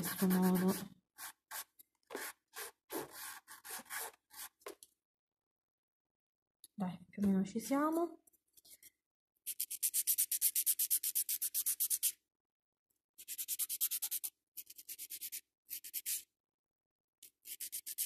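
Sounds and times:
nail file rasping: 0:17.2 - 0:18.0.

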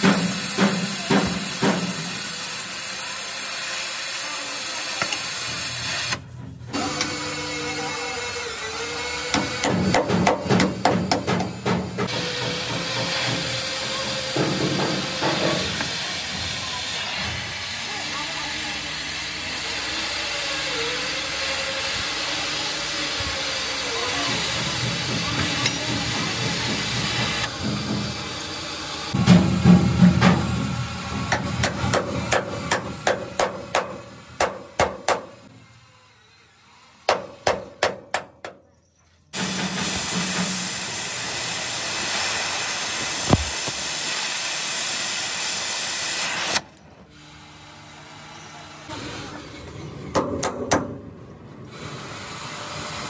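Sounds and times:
steady hiss: 0:39.4 - 0:46.6.

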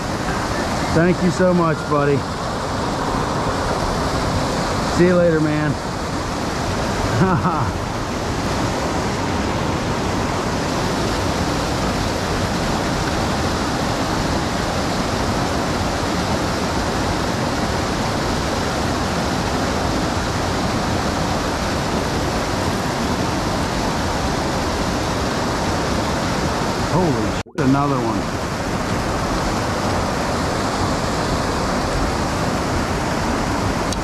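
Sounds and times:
creek water rushing: 0:00.0 - 0:34.0.

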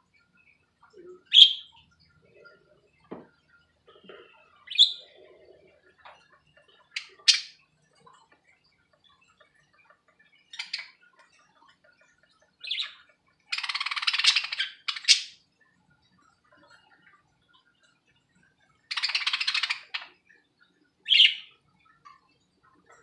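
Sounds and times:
budgies chirping and squawking: 0:00.4 - 0:08.4, 0:09.0 - 0:15.5, 0:18.9 - 0:20.3, 0:21.1 - 0:22.2.

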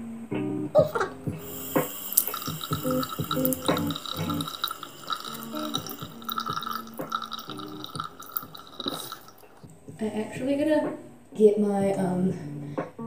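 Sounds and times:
running tap: 0:01.4 - 0:09.7
water splashing at a sink: 0:01.4 - 0:09.7.

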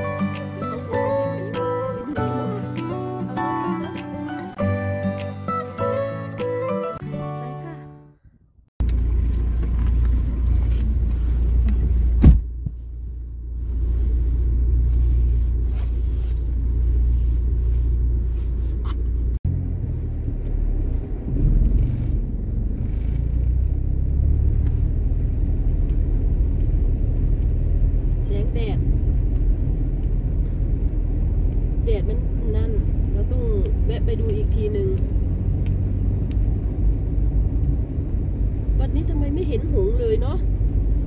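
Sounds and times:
car engine and tyre rumble: 0:08.8 - 0:41.0.

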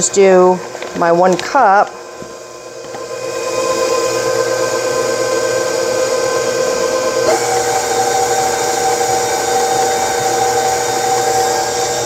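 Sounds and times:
stand mixer motor whining: 0:00.6 - 0:12.0.

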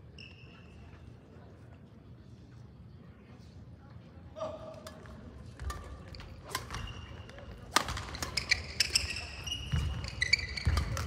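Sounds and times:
shoes squeaking on floor: 0:00.0 - 0:01.0, 0:06.0 - 0:11.0
rackets striking shuttlecock: 0:04.8 - 0:11.0.

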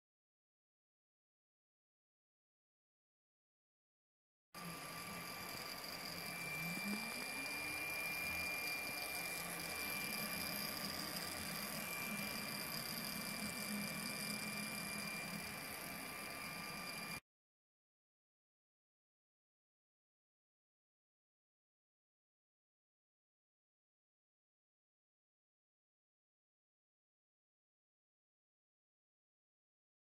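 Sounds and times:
three d printer whirring: 0:04.6 - 0:17.2.

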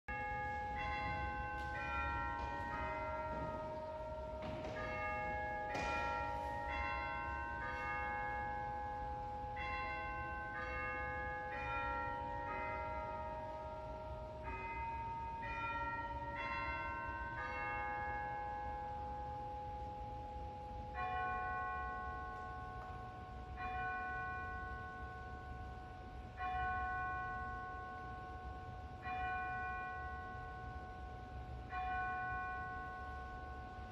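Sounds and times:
church bells chiming tune: 0:00.1 - 0:33.9
single bell tolling: 0:00.7 - 0:08.5.

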